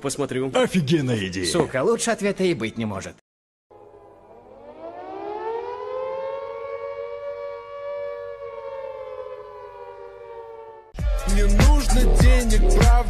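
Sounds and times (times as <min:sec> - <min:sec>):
siren wailing: 0:03.7 - 0:11.0.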